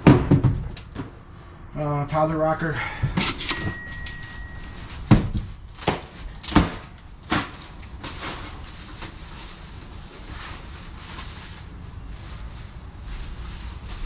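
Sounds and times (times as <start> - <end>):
cardboard boxes knocking and thudding: 0.0 - 1.2, 4.4 - 8.6.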